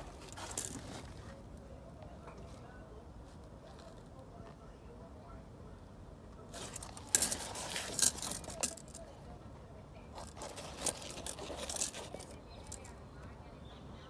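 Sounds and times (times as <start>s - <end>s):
tape measure rustling leaves: 6.6s - 8.9s.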